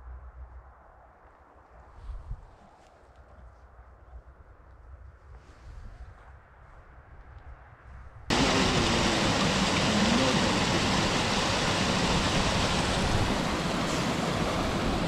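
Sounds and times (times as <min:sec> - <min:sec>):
stream rushing over stones: 0:08.3 - 0:15.0.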